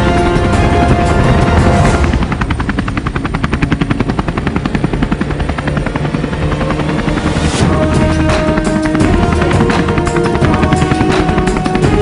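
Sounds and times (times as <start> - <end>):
background music with held tones: 0.0 - 2.6, 6.0 - 12.0
helicopter rotor chopping: 0.0 - 12.0.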